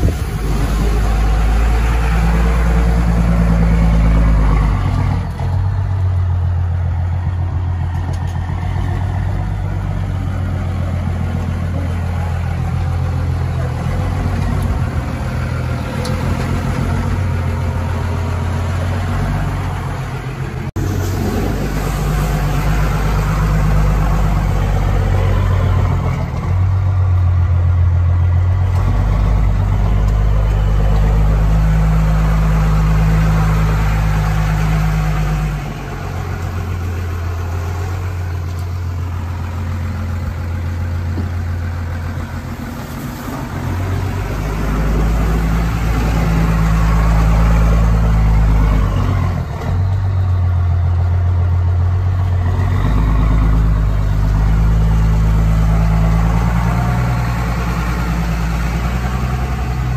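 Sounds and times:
diesel truck engine running: 0:00.0 - 0:59.9.

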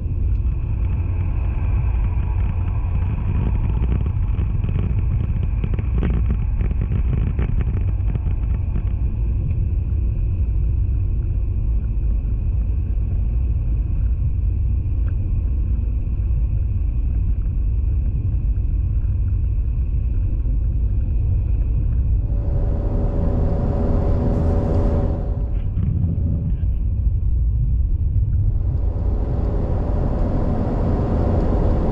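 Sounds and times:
steady hum: 0:21.4 - 0:31.9
car cabin road and engine rumble: 0:21.6 - 0:27.0, 0:28.0 - 0:31.9.

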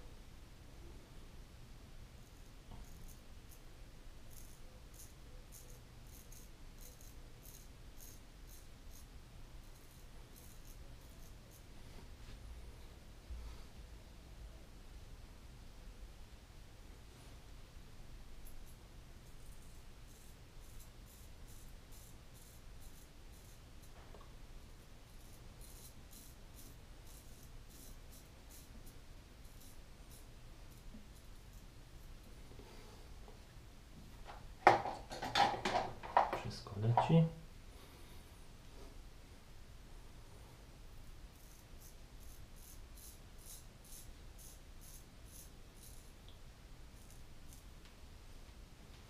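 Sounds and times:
razor scraping stubble: 0:04.3 - 0:11.7, 0:18.4 - 0:24.0, 0:24.8 - 0:32.2, 0:41.3 - 0:46.2, 0:47.0 - 0:47.7.

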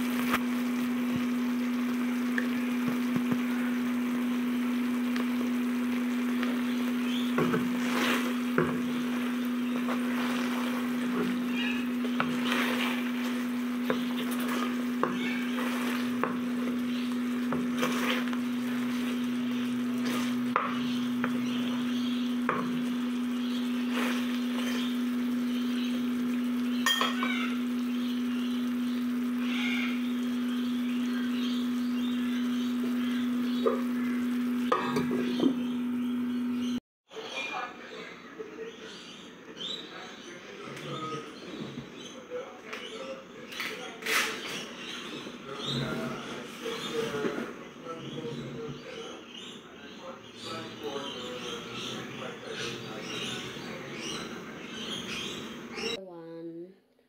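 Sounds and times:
food sizzling in a wok: 0:00.0 - 0:36.0
steady low hum: 0:00.0 - 0:36.8
wooden spoon scraping a pan: 0:07.2 - 0:22.9, 0:23.5 - 0:25.8.

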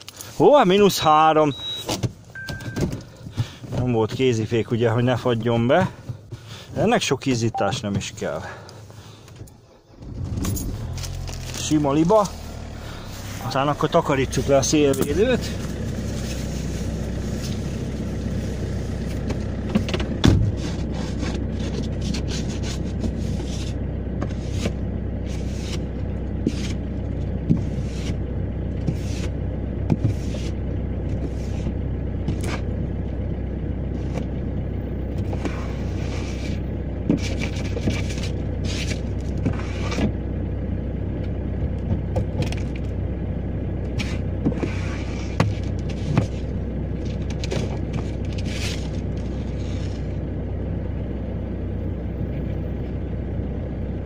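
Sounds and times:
diesel engine idling: 0:00.0 - 0:54.0
scraping frost off windscreen: 0:10.8 - 0:14.8, 0:15.4 - 0:18.6, 0:20.6 - 0:26.8, 0:28.9 - 0:29.4, 0:44.0 - 0:46.5, 0:48.1 - 0:50.2.

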